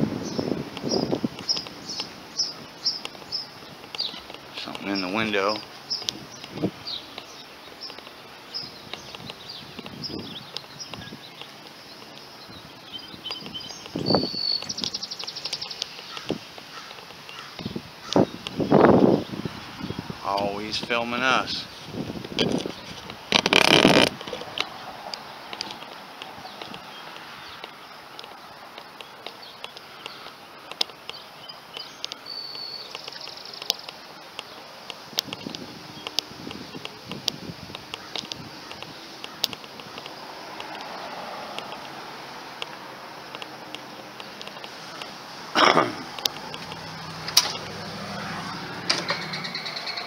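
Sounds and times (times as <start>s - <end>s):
birds chirping: 0.0s - 50.0s
footsteps on asphalt: 0.3s - 18.7s, 21.7s - 48.6s
rapid bird trill: 0.3s - 19.3s, 28.8s - 34.7s, 48.5s - 50.0s.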